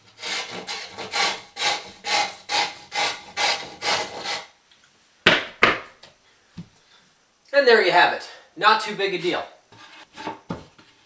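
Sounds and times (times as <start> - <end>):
tool scraping drywall edge: 0.2 - 4.5.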